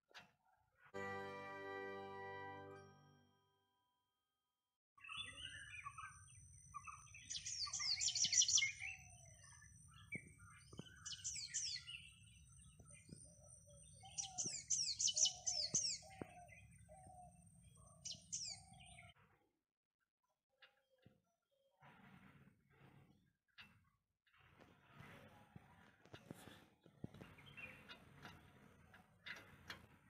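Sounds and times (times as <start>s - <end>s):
lower bird call: 5.0s - 13.1s, 13.8s - 19.2s
birds chirping: 5.0s - 19.2s, 26.1s - 29.6s.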